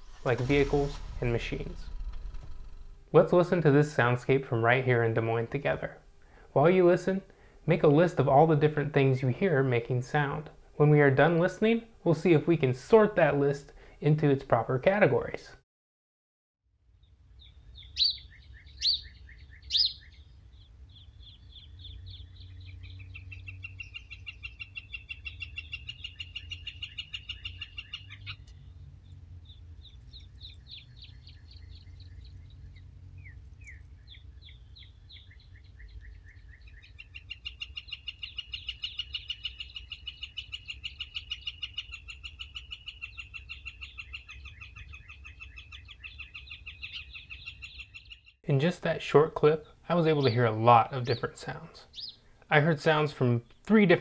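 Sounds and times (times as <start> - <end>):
wind: 0.0 - 15.6, 16.7 - 54.0
trilled bird songs: 16.9 - 54.0
bird chirps: 17.0 - 48.4, 49.5 - 52.4.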